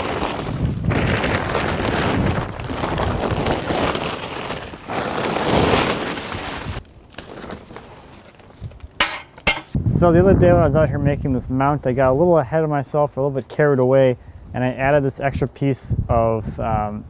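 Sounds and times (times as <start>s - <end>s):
plastic tarp rustling: 0.0s - 8.8s.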